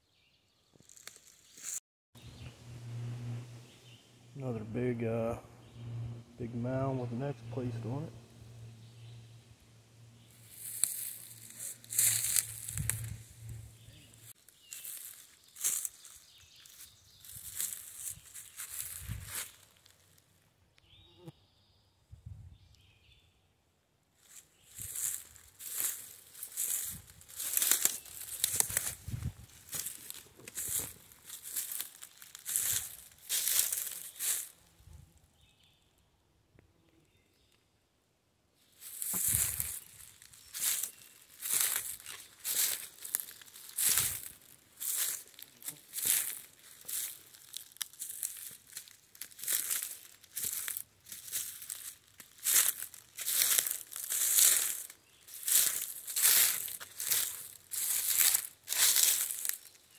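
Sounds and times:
footsteps crunching dry leaves: 0.8 - 1.8, 10.2 - 20.2, 24.2 - 34.7, 38.6 - 59.9.

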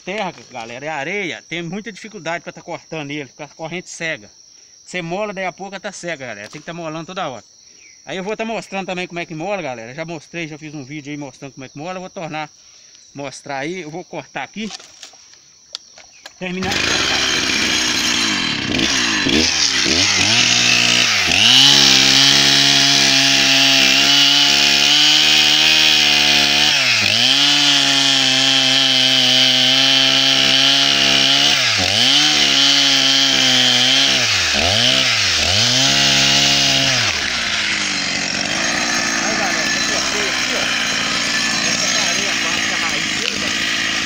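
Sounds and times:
chainsaw cutting log: 16.5 - 44.0.

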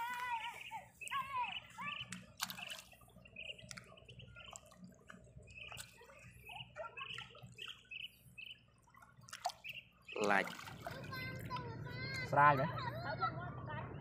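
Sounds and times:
water dripping and splashing: 1.7 - 8.0, 8.6 - 11.7.

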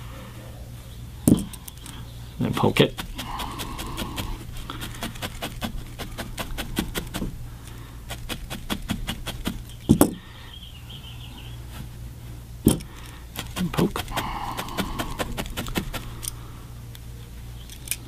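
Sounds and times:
felting needle stabbing wool: 2.6 - 7.4, 8.0 - 10.1, 12.7 - 16.2.

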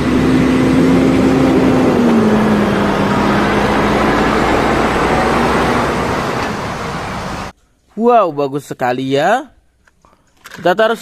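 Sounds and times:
truck diesel engine humming: 0.0 - 7.5.

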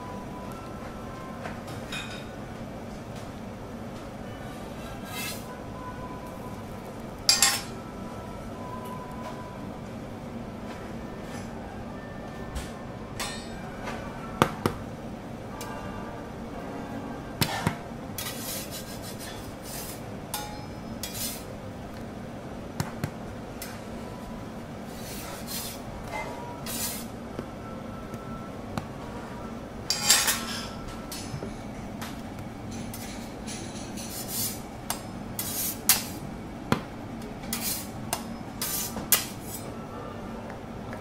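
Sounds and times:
metal spatula scraping griddle: 18.2 - 20.0, 21.0 - 21.5, 24.9 - 25.8, 26.6 - 27.1, 35.4 - 36.1, 37.5 - 37.9, 38.6 - 39.7.

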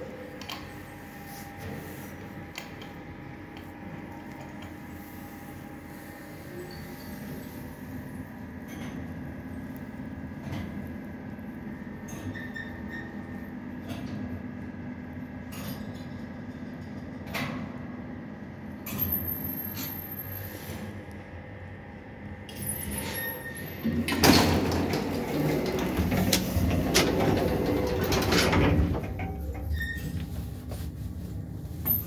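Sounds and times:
lift humming: 23.7 - 32.0
sliding doors rattling: 23.8 - 29.8.

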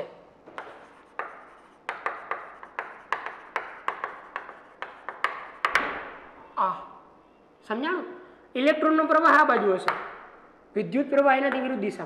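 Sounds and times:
pen tapping and scratching: 0.5 - 6.1.

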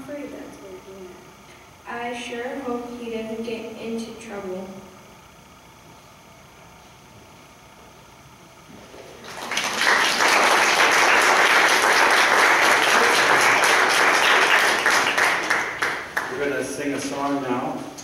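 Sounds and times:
audience applauding: 9.1 - 16.7.

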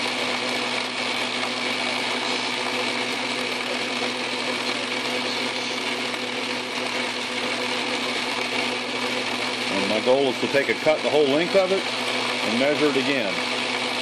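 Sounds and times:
metal lathe humming: 0.0 - 14.0.

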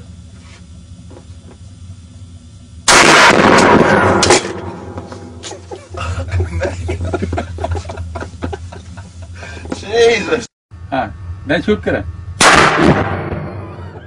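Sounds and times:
loud gunfire: 2.9 - 5.0, 12.4 - 13.8.

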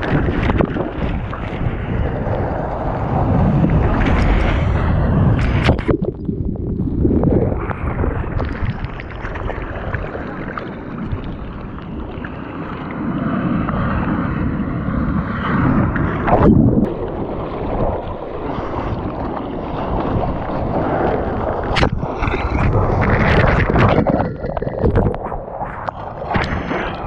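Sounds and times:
water splash: 0.0 - 2.4, 3.4 - 12.3, 15.9 - 27.0
seawater sloshing and rushing: 0.0 - 27.0
wind buffeting microphone: 0.0 - 27.0.

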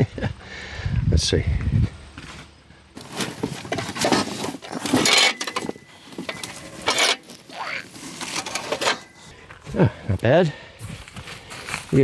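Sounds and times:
cardboard box scraping and rustling: 3.0 - 9.2.

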